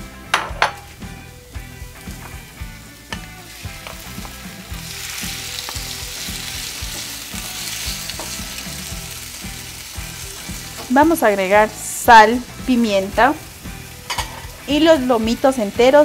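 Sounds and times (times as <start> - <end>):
onion frying in oil: 0.8 - 16.0.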